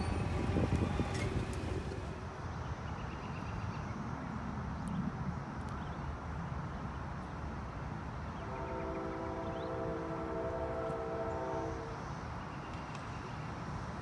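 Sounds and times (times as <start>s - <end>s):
low outdoor rumble: 0.0s - 3.0s
locomotive air horn chord: 8.4s - 12.2s.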